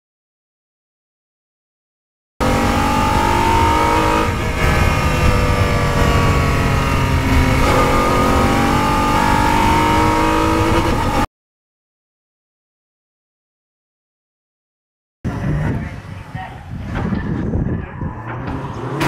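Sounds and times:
racing car engine at speed: 2.4s - 11.3s, 15.3s - 19.0s.

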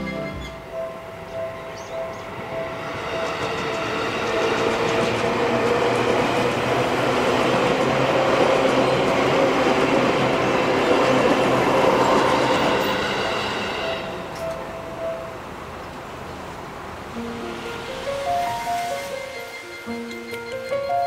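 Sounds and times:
crossing bell dinging: 0.0s - 5.0s, 18.7s - 21.0s
electric train rumbling past: 0.0s - 21.0s.

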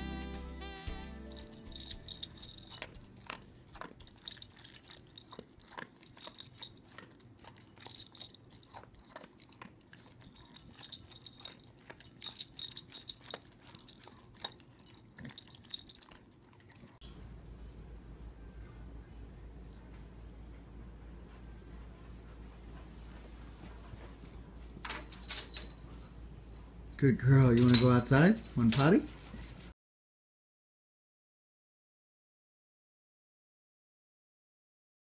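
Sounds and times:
dog crunching and chewing food: 0.7s - 17.0s.

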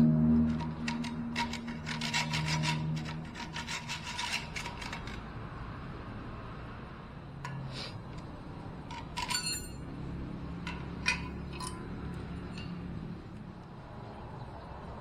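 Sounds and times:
ringing metal clink: 8.9s - 9.9s, 10.7s - 12.8s.

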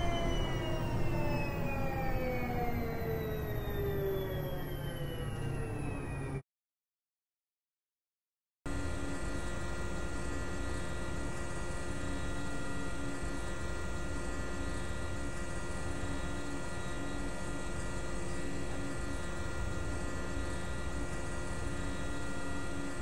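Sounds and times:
electrical hum: 0.0s - 6.4s
high whining tones: 0.0s - 6.4s
low pulsing tone: 0.0s - 6.4s.

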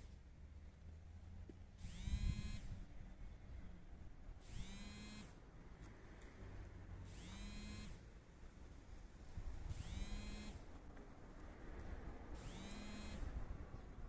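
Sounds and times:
small motor whirring: 1.8s - 2.8s, 4.4s - 5.4s, 7.1s - 8.0s, 9.7s - 10.7s, 12.4s - 13.4s.

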